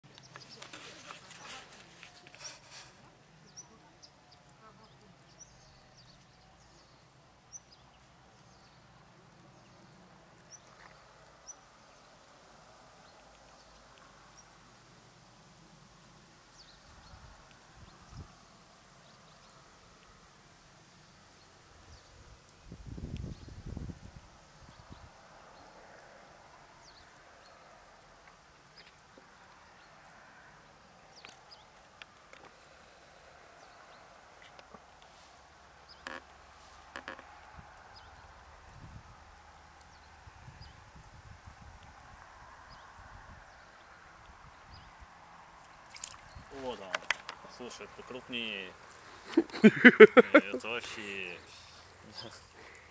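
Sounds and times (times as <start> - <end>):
steady low hiss: 0.0 - 52.9.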